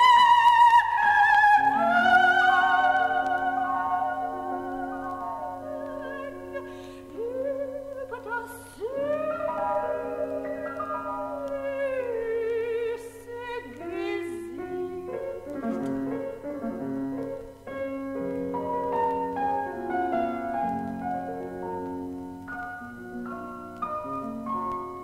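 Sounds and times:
soprano singing with vibrato: 0.0 - 16.6
piano chords: 0.0 - 25.0.

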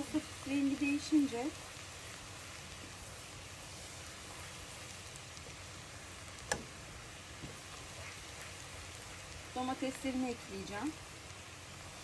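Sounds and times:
onion sizzling in oil: 0.0 - 12.0
sharp tap: 6.5 - 6.7.

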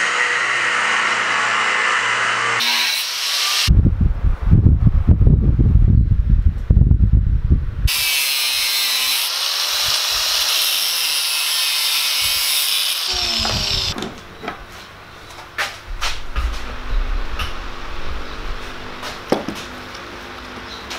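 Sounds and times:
angle grinder cutting steel: 0.0 - 3.7, 7.9 - 14.0
grinder motor winding down: 9.0 - 14.0.

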